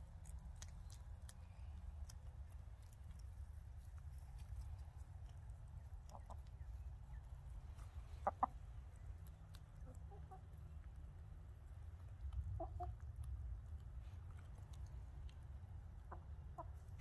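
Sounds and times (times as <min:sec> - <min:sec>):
hens clucking: 0:05.8 - 0:10.8, 0:12.2 - 0:13.0, 0:15.8 - 0:17.0.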